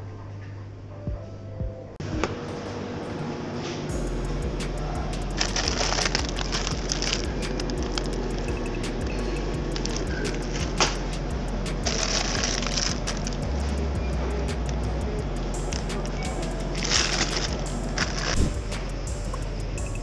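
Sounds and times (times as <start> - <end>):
steady low hum: 0.0 - 20.0
plastic film crinkling: 4.7 - 8.5, 9.2 - 13.9, 15.6 - 18.8.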